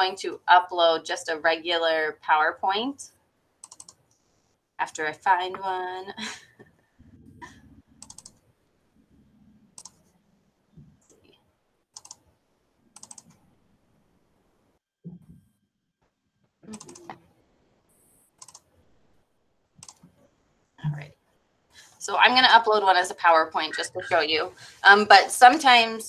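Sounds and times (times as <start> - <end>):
mouse clicks: 3.6 - 4.0
keyboard typing: 3.6 - 4.2, 7.4 - 8.4, 9.7 - 10.1, 11.0 - 12.3, 12.9 - 13.5, 16.7 - 17.2, 17.9 - 18.7, 19.8 - 20.2.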